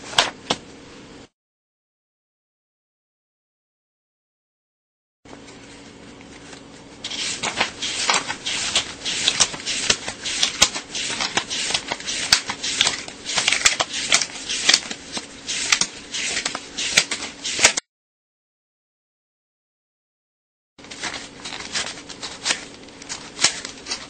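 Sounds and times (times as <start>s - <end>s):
paper bills flicked by hand: 7.1s - 17.8s, 20.8s - 24.0s.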